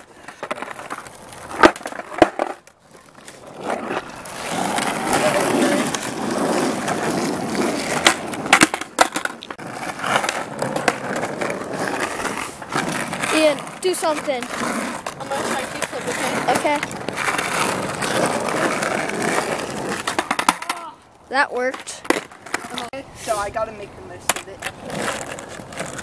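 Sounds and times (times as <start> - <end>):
skateboard clacks: 0.0 - 21.0, 21.6 - 22.9, 24.2 - 26.0
skateboard wheels rolling on asphalt: 0.0 - 26.0.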